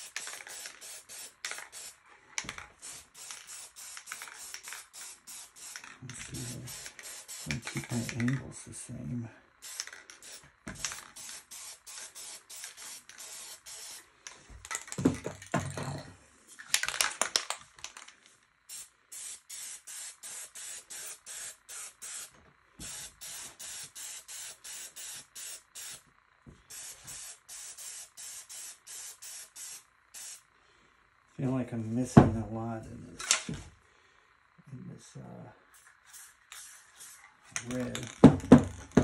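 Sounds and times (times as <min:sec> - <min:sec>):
spray paint can hissing: 0:00.0 - 0:08.3, 0:09.6 - 0:15.0, 0:18.7 - 0:26.0, 0:26.7 - 0:30.5, 0:35.7 - 0:38.2
knocks and clatter: 0:37.6 - 0:39.0.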